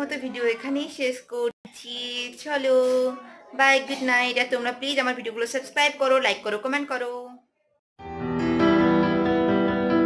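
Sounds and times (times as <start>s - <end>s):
piano background music: 8.0s - 10.0s.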